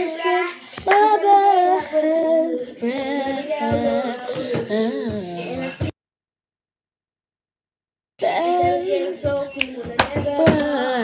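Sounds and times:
girl singing: 0.0 - 5.9, 8.2 - 11.0.

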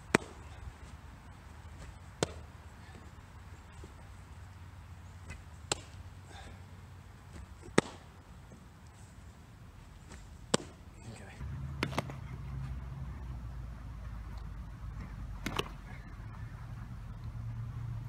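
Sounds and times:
baseballs smacking into mitt: 0.0 - 0.6, 1.7 - 2.5, 5.2 - 6.0, 7.3 - 8.2, 10.0 - 10.9, 11.8 - 12.3, 15.0 - 15.9
steady low rumble: 0.0 - 18.0.

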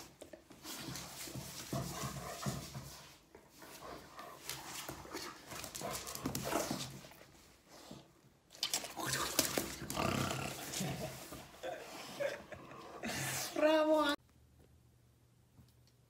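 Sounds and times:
dog panting: 0.6 - 8.1.

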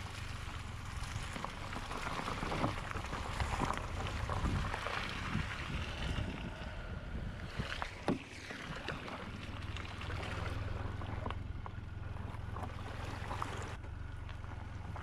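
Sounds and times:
wind buffeting the microphone: 1.8 - 9.5.

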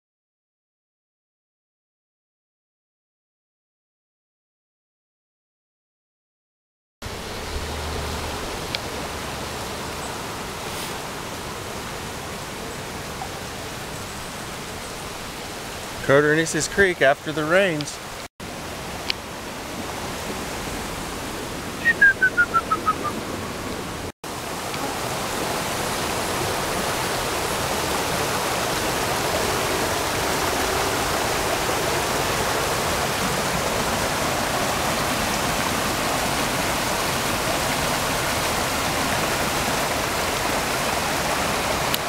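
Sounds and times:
creek rushing over rocks: 7.1 - 42.0
high chirps: 21.8 - 23.2.

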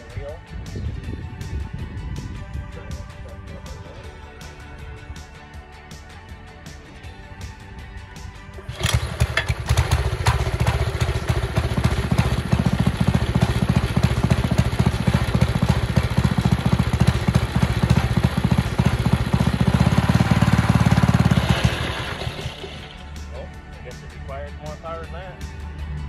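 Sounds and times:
mower engine running: 8.6 - 23.3.

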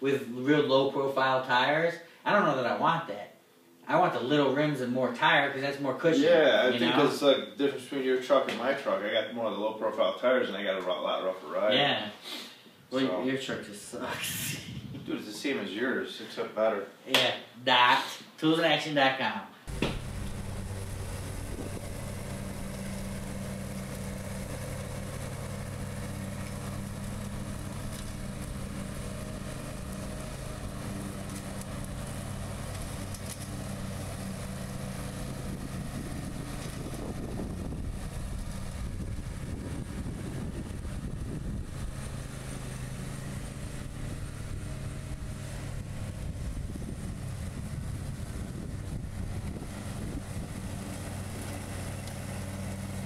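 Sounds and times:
mower engine running: 19.7 - 53.0.

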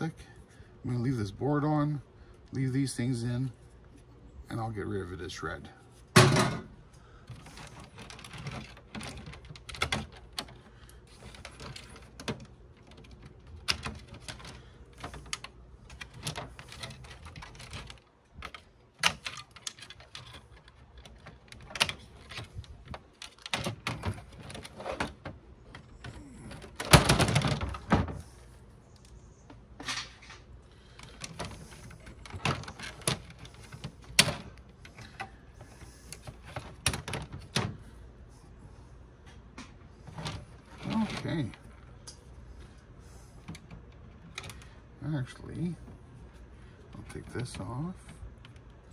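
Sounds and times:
plastic and metal parts clicking: 7.2 - 28.0.

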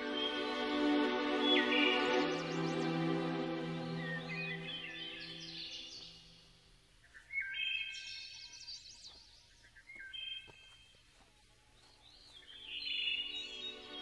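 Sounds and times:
background music high held notes: 0.0 - 5.8
chirping musical flourishes: 0.0 - 6.4, 12.2 - 14.0.

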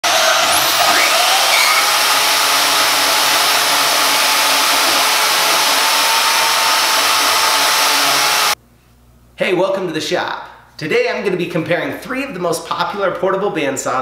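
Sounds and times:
bandsaws cutting metal tubing: 0.0 - 8.6.

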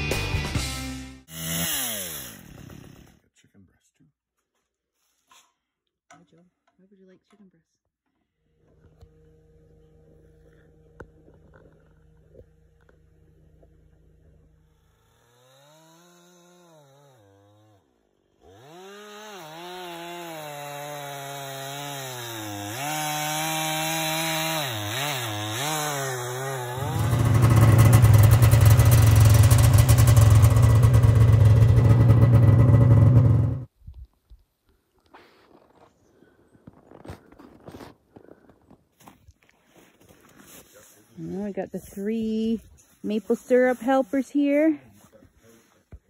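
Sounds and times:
chainsaw cutting log: 1.2 - 3.2, 10.4 - 33.6.

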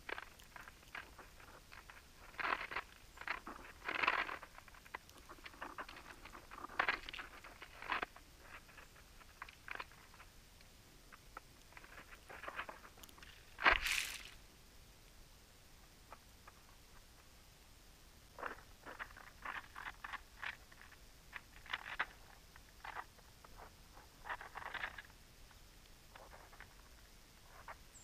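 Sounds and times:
bird cracking seeds: 0.0 - 10.3, 11.1 - 14.4
shuffling in snow: 13.7 - 14.4.

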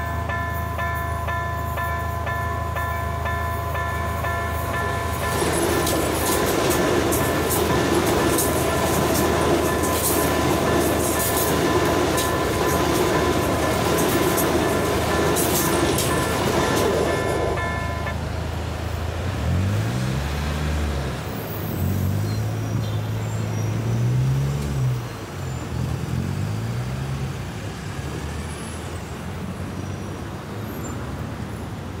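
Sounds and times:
steady traffic noise: 0.0 - 32.0
train wheels rumbling on rails: 0.0 - 32.0
vehicle engines revving: 18.4 - 32.0.

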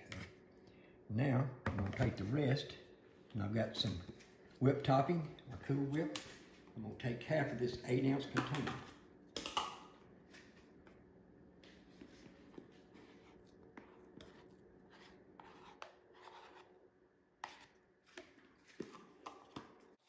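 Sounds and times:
metal spoon scraping plastic tub: 12.0 - 16.7.

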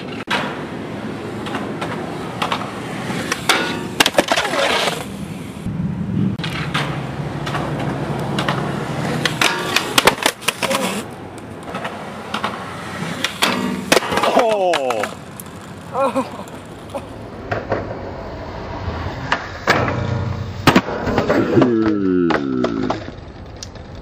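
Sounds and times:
skateboard wheels rolling on concrete: 0.0 - 24.0
skateboard clacks and knocks: 1.3 - 5.1, 6.4 - 16.0, 19.3 - 24.0.

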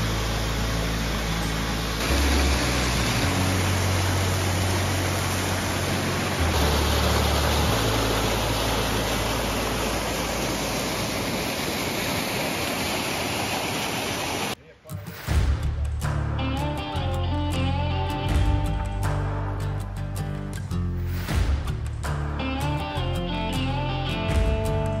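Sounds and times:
low hum stepping in pitch: 0.0 - 10.6
water rushing: 0.0 - 14.6.

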